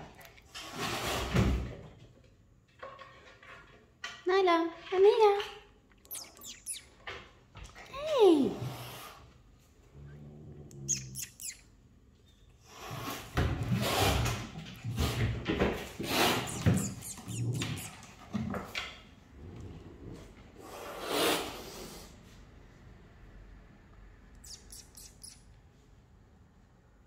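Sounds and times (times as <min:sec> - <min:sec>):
short high gliding calls: 0:06.1 - 0:06.9, 0:10.8 - 0:11.6, 0:16.3 - 0:18.0, 0:24.4 - 0:25.4
cats hissing and growling: 0:08.4 - 0:11.6, 0:12.6 - 0:18.4, 0:19.8 - 0:22.2.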